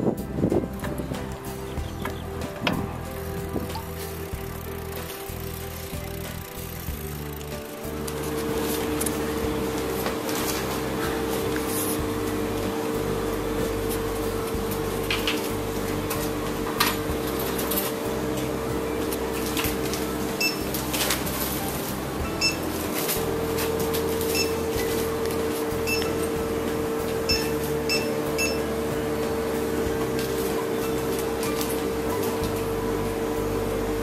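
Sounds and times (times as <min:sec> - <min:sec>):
electrical hum: 0:00.0 - 0:34.0
barcode scanner beeps: 0:20.4 - 0:20.7, 0:22.4 - 0:22.7, 0:24.3 - 0:24.6, 0:25.8 - 0:26.2, 0:27.2 - 0:28.7.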